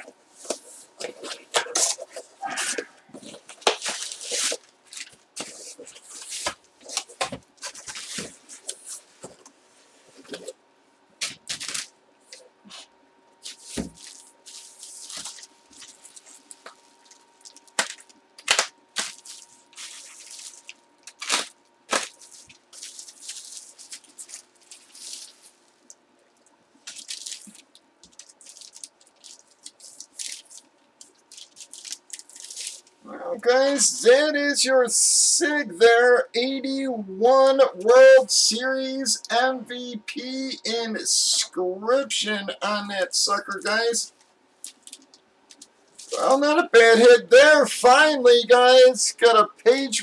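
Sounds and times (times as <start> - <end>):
bubble wrap crinkling: 3.2 - 9.0, 13.4 - 33.0, 44.6 - 46.3
plastic cracking: 15.1 - 32.8.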